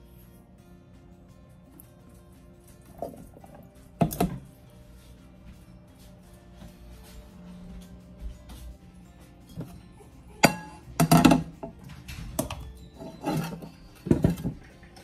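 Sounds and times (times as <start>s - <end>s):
metal pots clinking in a sink: 10.4s - 15.0s.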